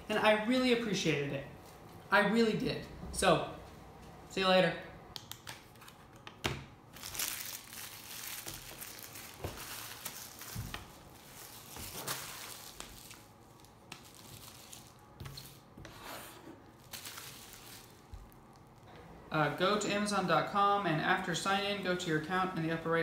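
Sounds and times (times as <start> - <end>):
plastic wrapping crinkling: 6.9 - 15.8, 16.6 - 18.9.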